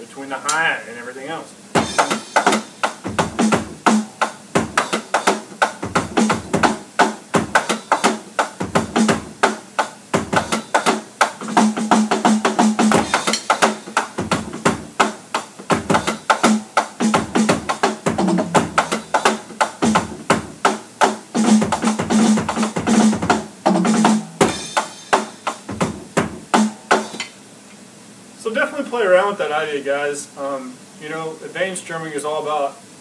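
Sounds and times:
open hi-hat accents: 0.2 - 28.7
electronic drum kit groove: 1.7 - 27.4
deeper drum hits: 1.8 - 4.9, 17.0 - 19.1, 21.4 - 25.0.

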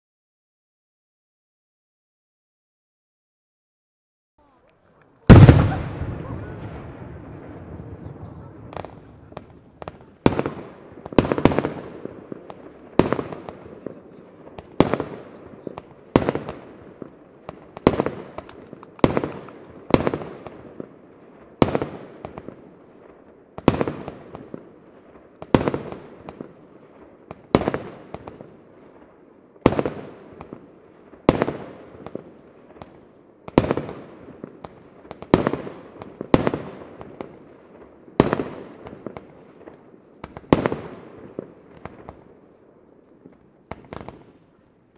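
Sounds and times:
firework crackle: 4.4 - 44.9
firework shells bursting: 17.4 - 20.6.

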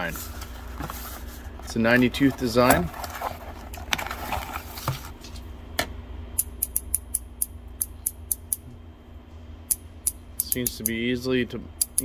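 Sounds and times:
ratchet clicking: 6.4 - 8.6, 9.7 - 11.0, 11.8 - 12.0.

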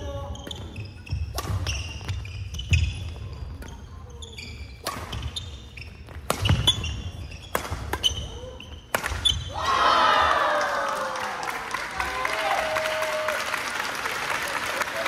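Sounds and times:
court shoes squeaking: 0.0 - 9.6.

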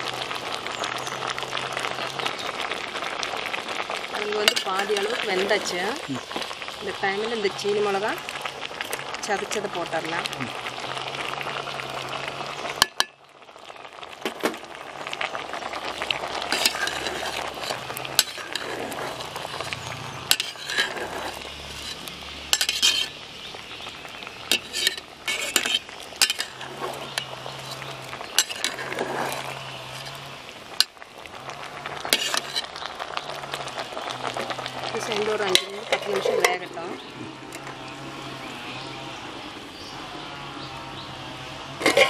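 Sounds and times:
simmering pot hissing: 0.0 - 42.0
steel ladle clinking against pot: 20.3 - 21.2.

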